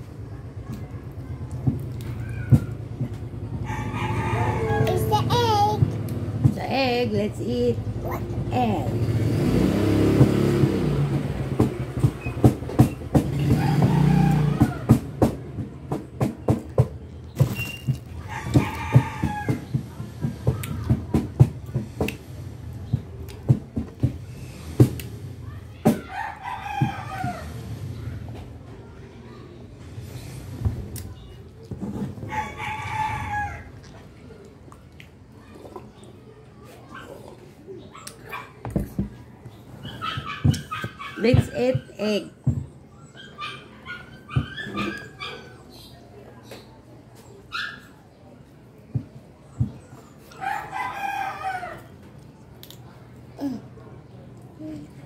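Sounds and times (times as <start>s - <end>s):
low engine hum: 0.0s - 25.8s
rooster crowing: 3.6s - 5.2s, 26.0s - 27.6s, 32.3s - 33.7s, 50.4s - 51.9s.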